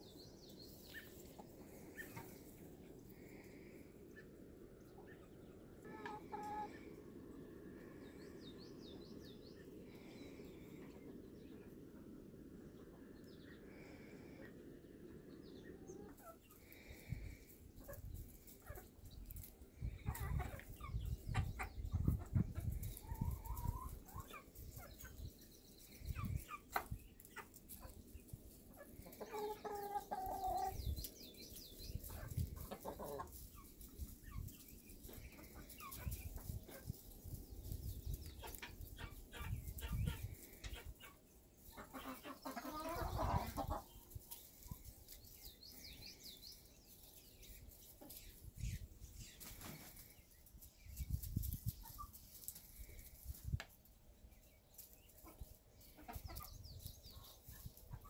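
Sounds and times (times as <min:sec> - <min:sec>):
hens clucking: 0:00.7 - 0:08.1, 0:14.4 - 0:45.9, 0:54.7 - 0:58.0.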